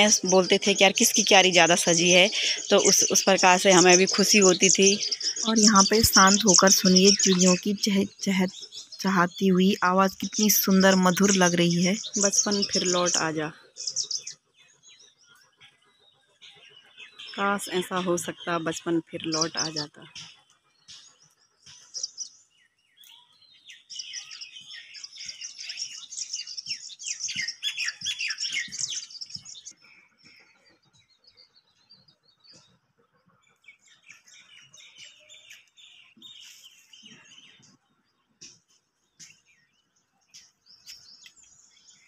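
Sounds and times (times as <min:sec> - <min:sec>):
birds chirping: 0:00.0 - 0:42.0.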